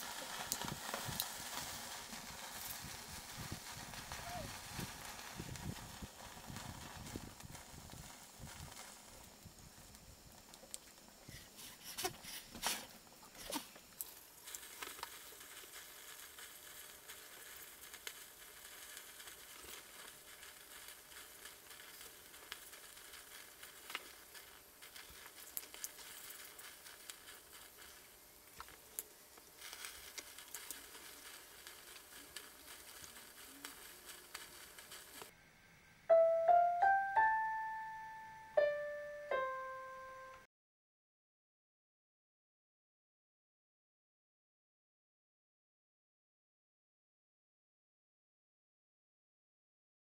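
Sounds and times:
matchsticks burning with crackles: 0.0s - 35.3s
piano-like keyboard jingle: 36.1s - 40.5s.

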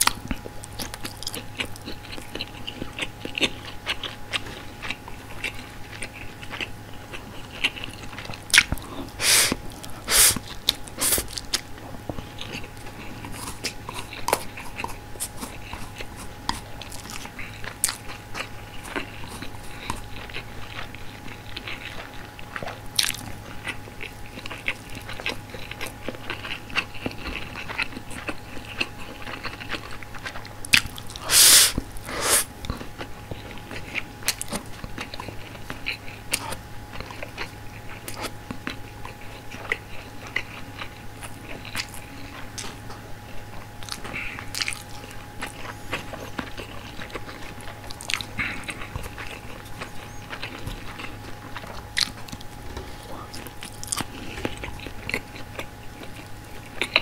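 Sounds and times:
close-up chewing: 0.0s - 57.0s
crunchy bites: 0.0s - 57.0s.

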